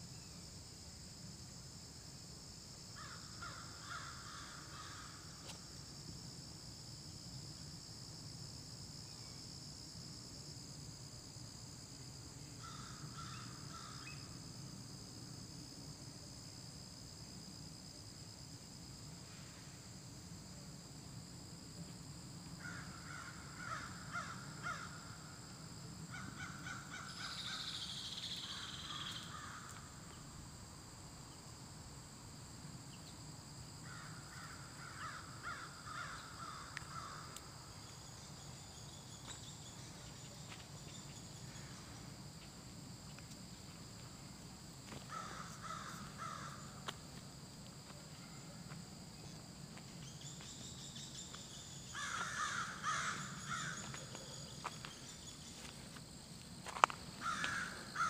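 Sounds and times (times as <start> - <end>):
high insect drone: 0.0 - 58.0
crows cawing: 3.0 - 5.0, 22.6 - 25.0, 33.8 - 37.4, 45.1 - 46.7, 52.0 - 54.0, 57.2 - 58.0.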